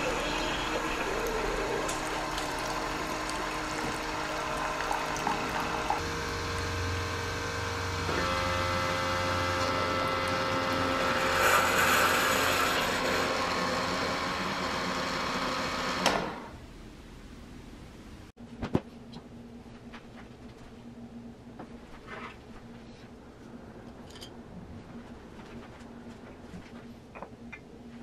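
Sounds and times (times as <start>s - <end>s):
coffee streaming into mug: 0.0s - 6.0s
coffee maker hiss: 0.0s - 6.8s, 9.7s - 13.0s
coffee maker pump humming: 0.0s - 16.5s.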